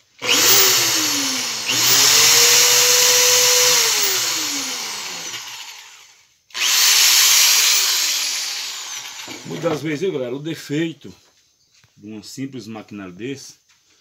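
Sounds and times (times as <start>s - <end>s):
electric drill motor whining: 0.2s - 9.6s.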